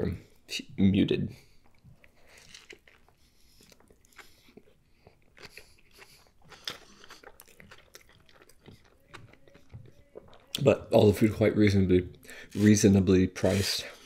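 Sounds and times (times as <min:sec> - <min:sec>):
person chewing food: 0:01.4 - 0:11.4.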